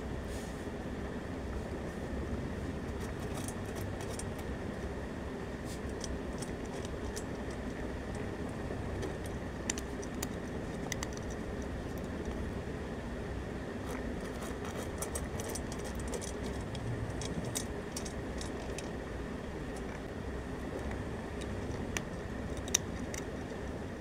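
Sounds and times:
cat crunching food: 2.9s - 4.6s, 5.7s - 12.6s, 13.7s - 24.0s.

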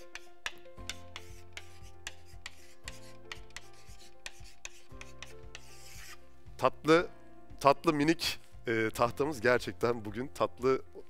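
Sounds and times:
writing strokes on board: 0.0s - 6.2s
quiet background music: 0.0s - 11.0s.

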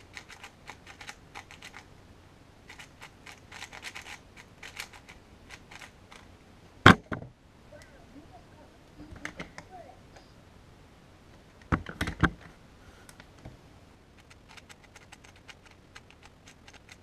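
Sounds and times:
puzzle cube layers clicking: 0.0s - 1.9s, 2.7s - 6.2s, 14.2s - 17.0s.

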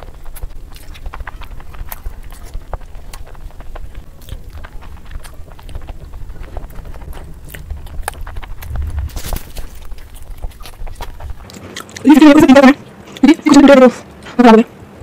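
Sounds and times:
low rumble: 0.0s - 11.5s
wet chewing and mouth clicks: 0.0s - 14.3s.

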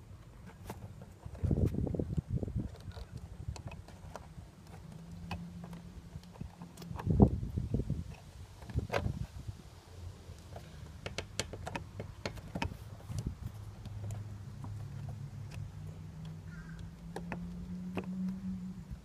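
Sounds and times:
light plastic clicks and taps: 10.4s - 18.4s.

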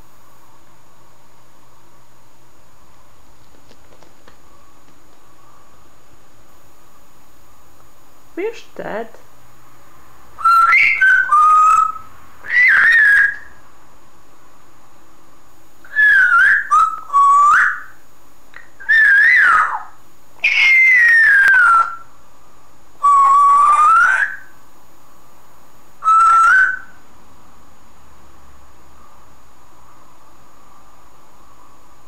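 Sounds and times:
parrot whistling: 10.4s - 13.6s, 15.8s - 18.0s, 18.6s - 22.1s, 23.0s - 24.5s, 26.0s - 27.0s.

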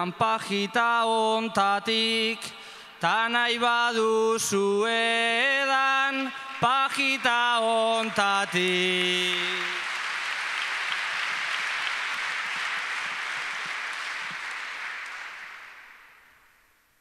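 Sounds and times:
man singing: 0.0s - 9.8s
audience applauding: 8.0s - 16.5s.

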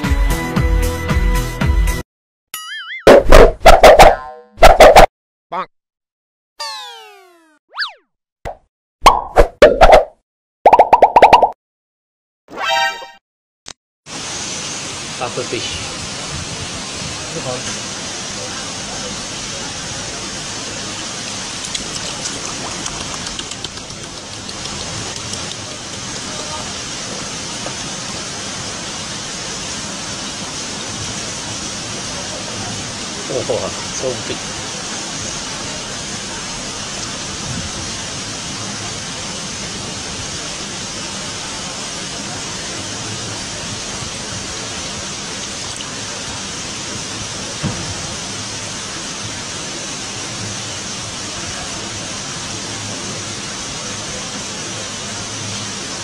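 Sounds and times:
steady rushing hiss: 14.1s - 56.0s
small splashes and drips: 21.3s - 26.1s, 45.4s - 45.9s.

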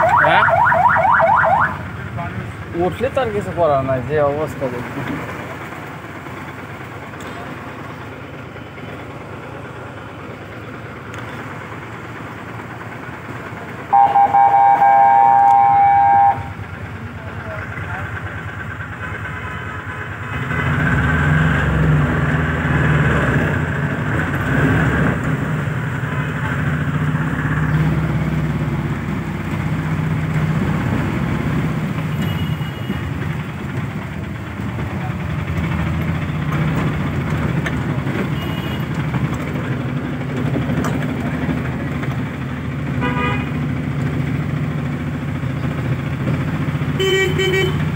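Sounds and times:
vehicle engine running: 0.0s - 47.9s
vehicle horn: 13.9s - 16.6s, 38.4s - 38.9s, 43.0s - 43.6s, 47.0s - 47.9s.

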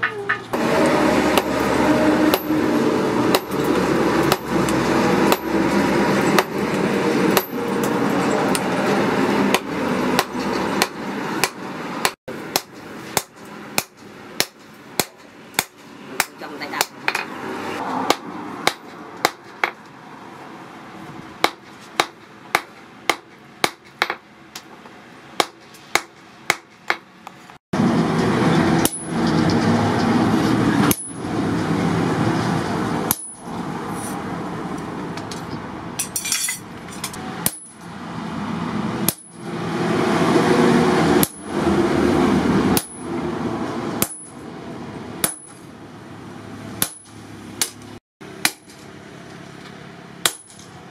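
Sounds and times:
hammer striking steel on anvil: 0.0s - 17.3s, 28.8s - 29.2s, 30.8s - 31.2s, 33.1s - 34.1s, 35.2s - 37.9s, 39.0s - 39.5s, 41.2s - 41.6s, 42.7s - 43.1s, 44.0s - 44.4s, 45.2s - 45.7s, 46.8s - 47.8s, 48.4s - 48.8s, 50.2s - 50.7s.

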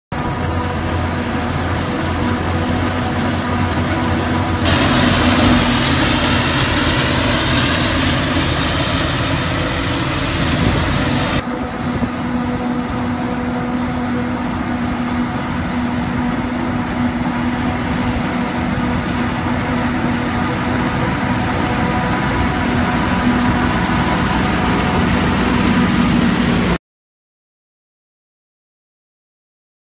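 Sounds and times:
tractor engine running: 0.1s - 26.8s
forage harvester chopping: 1.1s - 11.4s.

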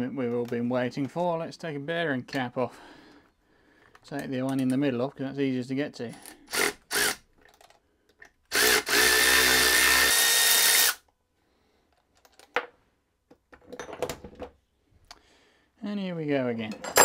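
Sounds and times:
handheld power tool running: 6.5s - 7.2s, 8.5s - 11.0s.

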